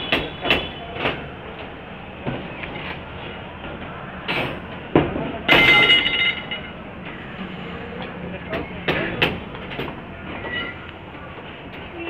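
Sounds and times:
ringing metallic clank: 5.5 - 6.7.

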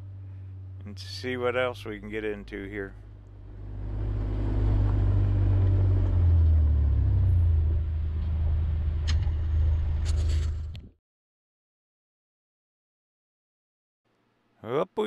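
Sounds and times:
engine low rumble: 0.0 - 10.9.

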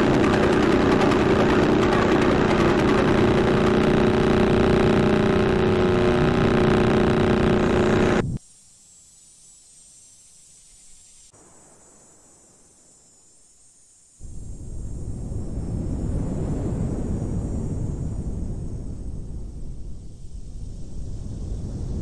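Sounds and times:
dense droning noise: 0.0 - 8.4
faint high hiss: 8.2 - 15.0.

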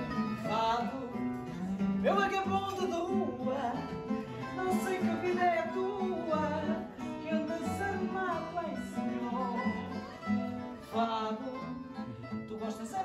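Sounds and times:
acoustic guitar plucking: 0.0 - 13.0.

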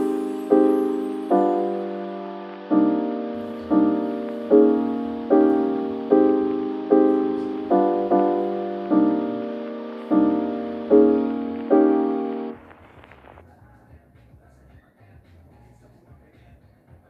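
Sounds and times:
slow piano chords: 0.0 - 12.8.

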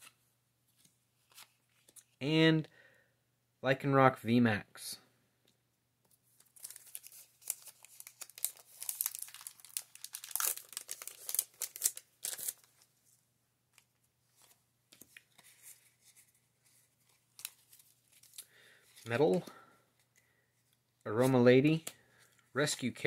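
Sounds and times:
faint card rustles: 0.0 - 2.2, 6.0 - 23.0
foil wrapper crinkling and tearing: 6.4 - 12.8.

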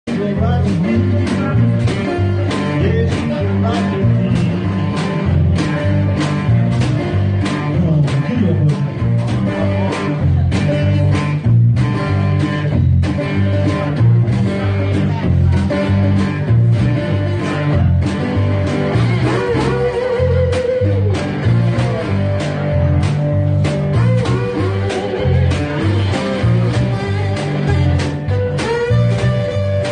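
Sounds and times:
bass line: 0.0 - 29.9
guitar: 0.0 - 29.9
drum beat: 0.1 - 29.9
slide guitar: 0.1 - 29.9.

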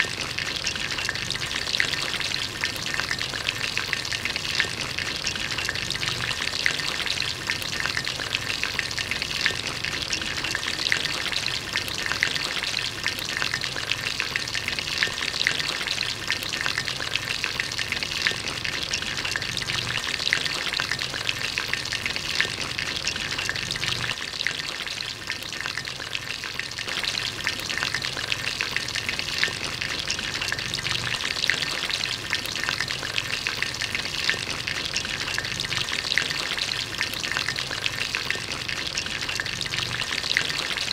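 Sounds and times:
hot oil sizzling and crackling: 0.0 - 40.9.

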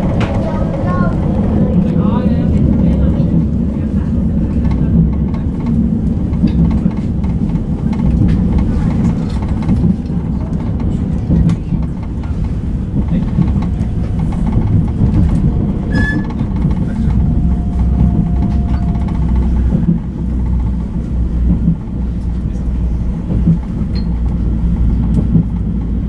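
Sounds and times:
tram wheels rumbling on rails: 0.0 - 26.0
high squeak: 15.9 - 16.4.

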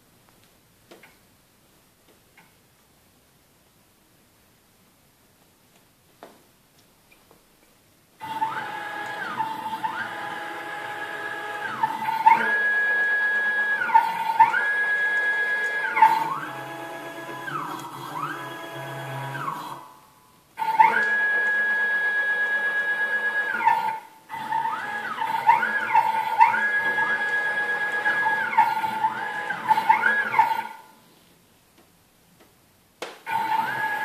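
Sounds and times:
stepper motors whining: 8.2 - 19.9, 20.6 - 30.8, 33.3 - 34.0.

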